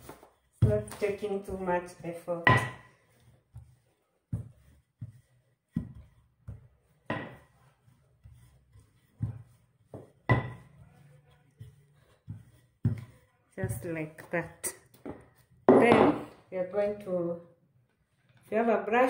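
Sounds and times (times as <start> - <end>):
rolling pin knocking on worktop: 2.4 - 2.9, 5.8 - 7.5, 9.2 - 10.7, 15.0 - 16.2.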